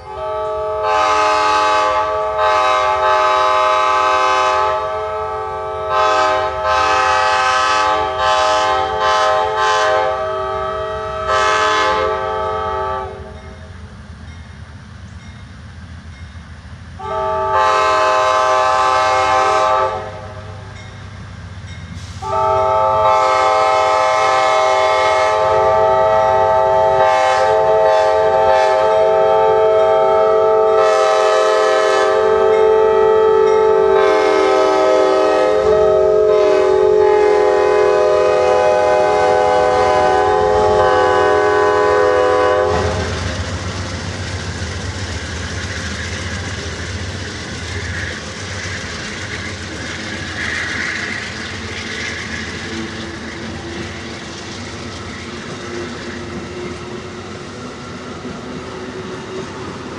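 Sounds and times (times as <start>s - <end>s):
locomotive horn chord: 0.0s - 13.6s, 17.0s - 20.6s, 22.1s - 43.2s
train cars rumbling and clattering: 0.0s - 59.9s.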